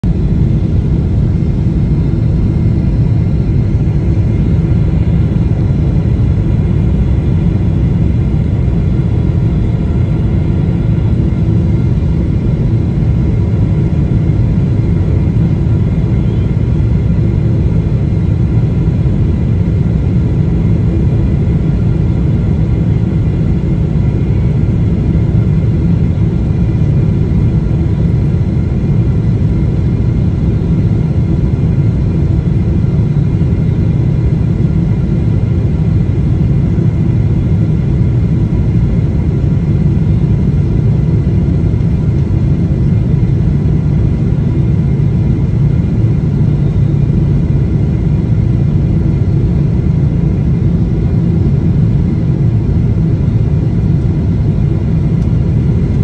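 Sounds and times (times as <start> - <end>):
jet engine cabin rumble: 0.0 - 56.0
faint whining tones: 0.1 - 21.5.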